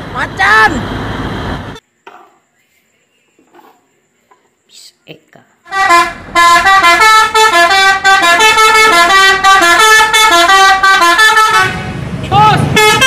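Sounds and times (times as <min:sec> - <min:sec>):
multi-tone air horn melody: 0:05.6 - 0:13.0.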